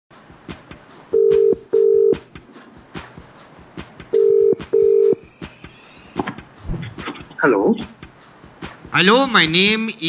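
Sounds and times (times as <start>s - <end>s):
telephone ringback tone beeps: 4.2s - 5.2s.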